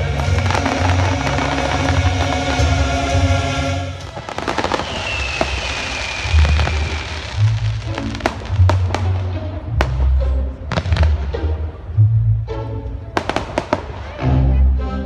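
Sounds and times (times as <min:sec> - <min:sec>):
fireworks bangs and cracks: 0:00.0 - 0:03.4, 0:04.0 - 0:09.2
loud music with heavy bass: 0:00.0 - 0:04.0.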